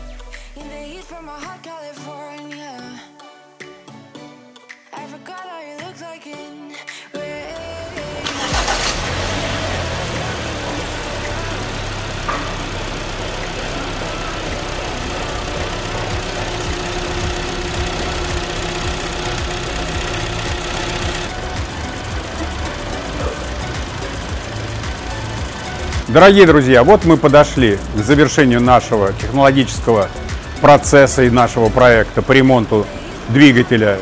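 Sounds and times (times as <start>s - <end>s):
car engine starting and idling: 7.4s - 34.0s.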